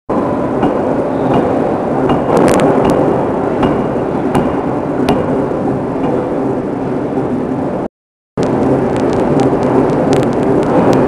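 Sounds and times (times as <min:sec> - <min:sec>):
loud machine noise: 0:00.1 - 0:11.0
forging hammer striking steel: 0:00.2 - 0:06.4.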